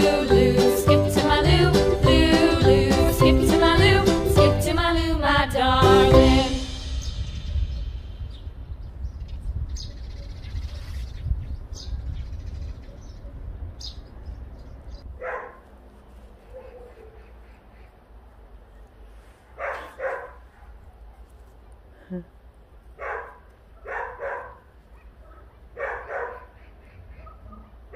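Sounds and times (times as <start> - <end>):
low rumble: 1.5 - 10.3.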